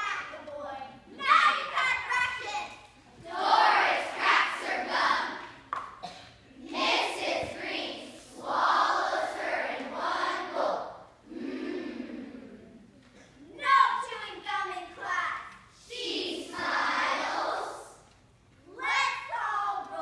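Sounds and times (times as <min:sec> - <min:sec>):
children reciting in unison: 0:03.2 - 0:12.5, 0:15.9 - 0:18.1.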